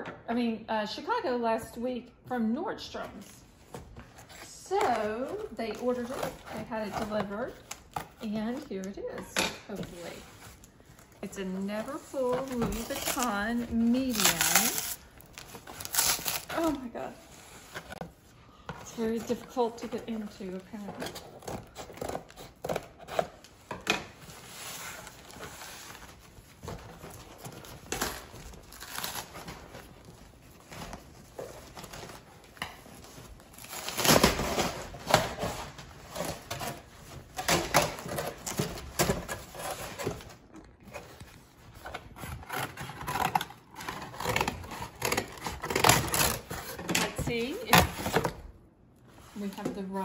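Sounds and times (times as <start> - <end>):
tape and cardboard tearing: 11.7 - 17.0, 24.4 - 48.4.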